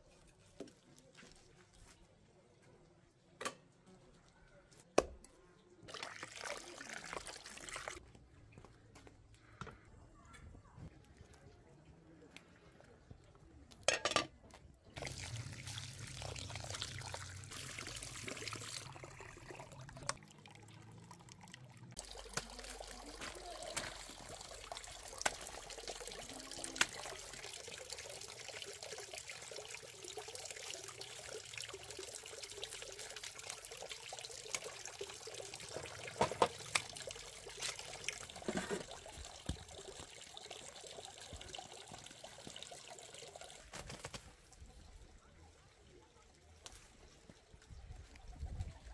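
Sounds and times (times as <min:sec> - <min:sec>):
water trickling: 0:05.9 - 0:08.0, 0:15.0 - 0:44.0.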